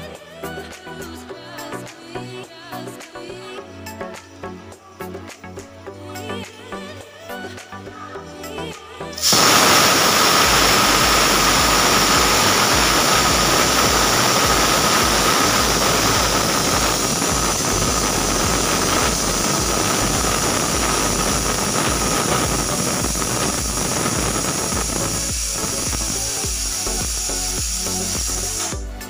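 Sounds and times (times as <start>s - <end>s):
pressure cooker whistle venting steam: 9.2s - 28.9s.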